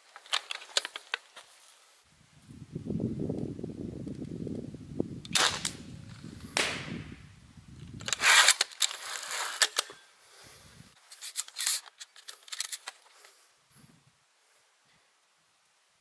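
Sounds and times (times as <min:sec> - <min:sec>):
slingshot rifle snapping: 0:05.3 - 0:05.8, 0:06.6 - 0:07.0.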